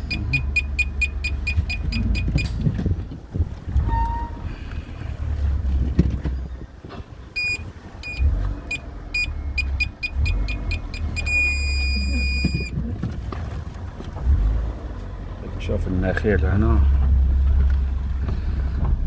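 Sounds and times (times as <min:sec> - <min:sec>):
parking sensor beeping: 0:00.0 - 0:02.7, 0:06.3 - 0:12.8
low engine rumble: 0:00.0 - 0:19.0.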